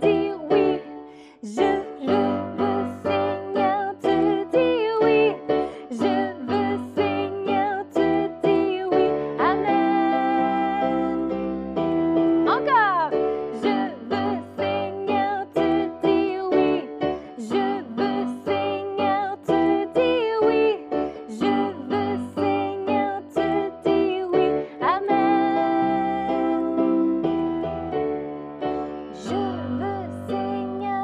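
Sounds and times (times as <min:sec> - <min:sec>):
children's worship song singing: 0:00.0 - 0:11.3, 0:13.6 - 0:27.1.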